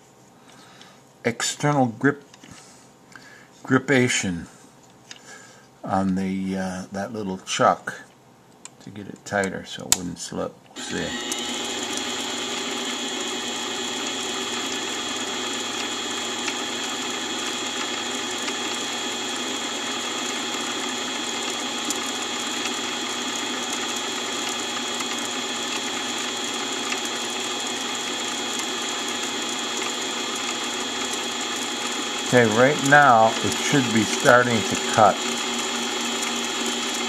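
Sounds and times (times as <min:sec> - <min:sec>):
lathe motor whirring and whining: 0:10.8 - 0:37.0.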